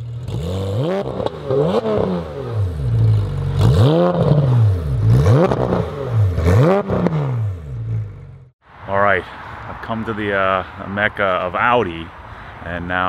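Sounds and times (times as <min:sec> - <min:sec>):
engine revving: 0:00.0 - 0:08.5.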